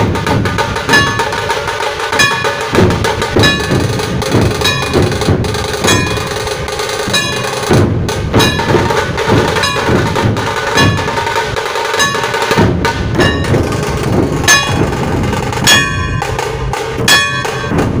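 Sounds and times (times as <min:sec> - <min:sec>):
barrel drums beaten: 0:00.0 - 0:18.0
sharp ringing strikes: 0:00.9 - 0:01.5, 0:03.4 - 0:07.8, 0:08.4 - 0:08.8, 0:09.6 - 0:11.4, 0:12.0 - 0:12.6, 0:14.5 - 0:14.9, 0:15.6 - 0:16.4, 0:17.0 - 0:17.8.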